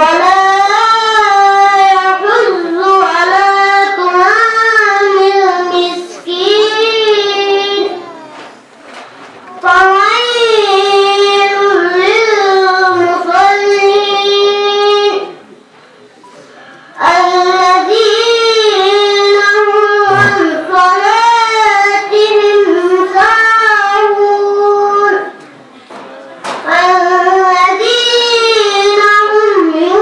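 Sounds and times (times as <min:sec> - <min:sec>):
person chanting recitation: 0:16.5 - 0:25.3.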